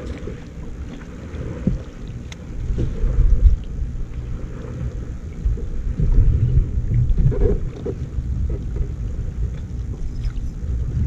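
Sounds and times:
wind buffeting microphone: 2.6 - 11.0.

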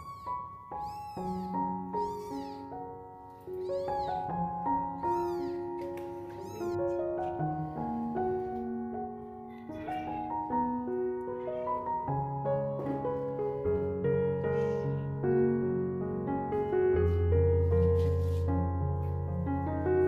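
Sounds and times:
kittens mewing: 0.0 - 2.8, 3.5 - 4.4, 5.0 - 7.0
soft piano music: 0.0 - 20.0.

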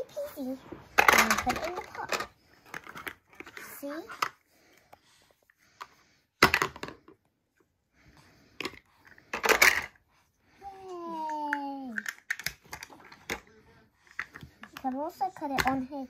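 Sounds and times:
plastic toys clattering: 0.4 - 4.4, 6.4 - 7.2, 8.5 - 10.0, 11.5 - 16.0.

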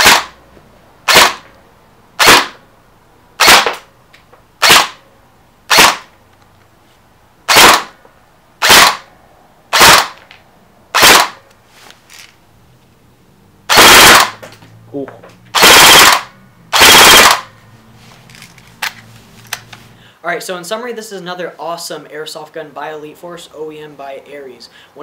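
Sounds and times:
airsoft rifle shots clacking: 0.0 - 0.4, 1.1 - 1.5, 2.2 - 2.6, 3.4 - 3.9, 4.6 - 5.0, 5.7 - 6.1, 7.5 - 8.0, 8.6 - 9.1, 9.7 - 10.3, 11.0 - 11.4, 13.7 - 14.5, 15.5 - 17.5.

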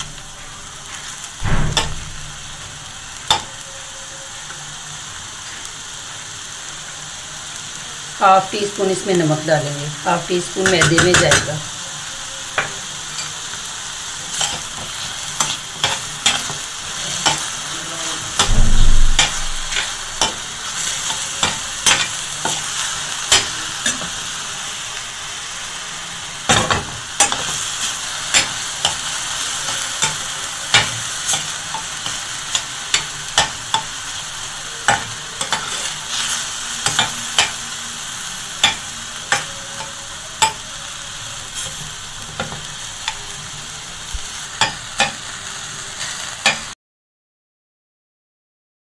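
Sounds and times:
chicken sizzling in frying pan: 0.0 - 46.8
loud low thud: 1.4 - 2.5, 18.5 - 20.2.

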